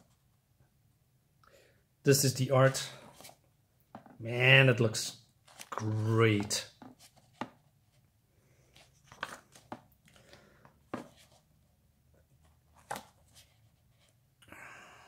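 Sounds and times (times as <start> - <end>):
book pages turning: 5.4 - 7.6, 8.8 - 11.5, 12.4 - 14.2.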